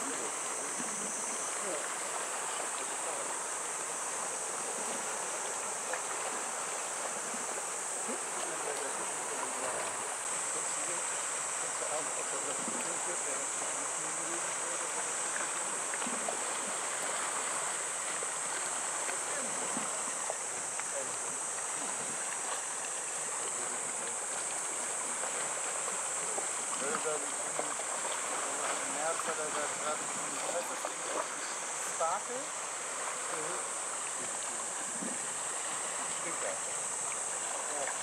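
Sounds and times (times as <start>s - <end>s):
high-pitched hiss: 0.0s - 38.0s
water noise: 0.0s - 38.0s
wind: 0.0s - 38.0s.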